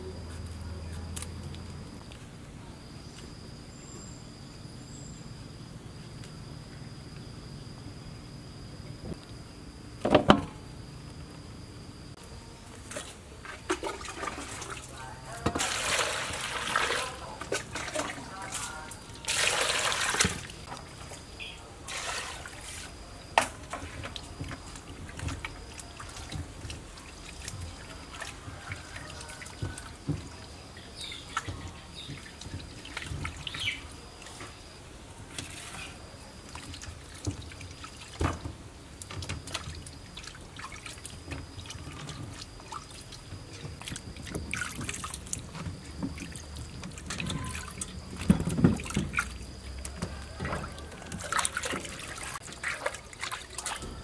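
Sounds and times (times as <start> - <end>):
water splashing and dripping: 12.8 - 54.0.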